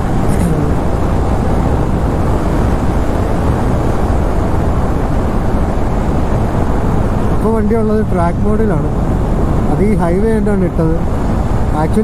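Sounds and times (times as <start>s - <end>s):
motorcycle engine cruising: 0.0s - 7.4s
wind rush on microphone: 0.0s - 12.0s.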